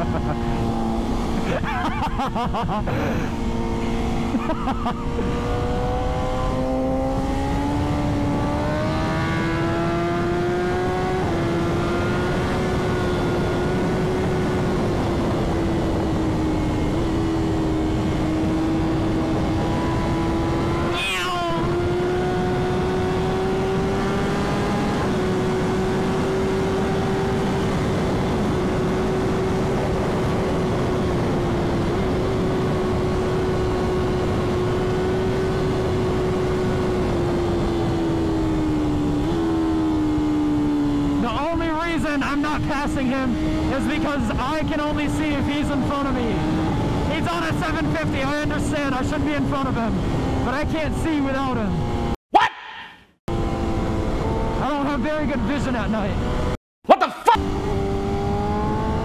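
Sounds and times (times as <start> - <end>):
motorcycle engine running hard: 0.0 - 52.1, 53.3 - 56.5.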